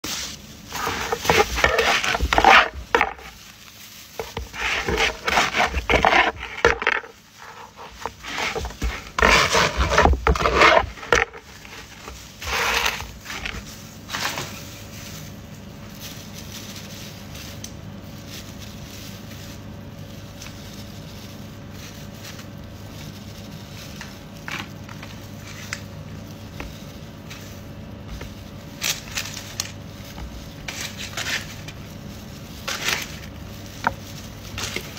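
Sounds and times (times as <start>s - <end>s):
low room hum: 0.0s - 34.9s
knife sawing through crusty bread: 4.2s - 13.5s.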